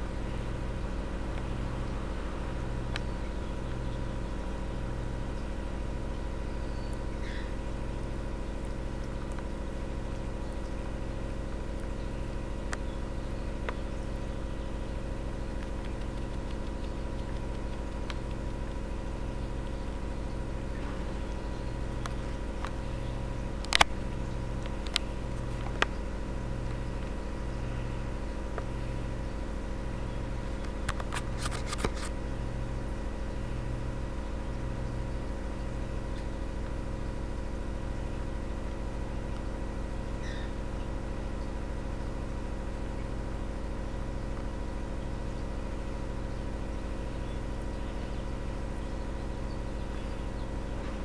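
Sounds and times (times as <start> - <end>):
sharp click: 15.5 - 18.8, 23.6 - 26.0, 30.6 - 32.2.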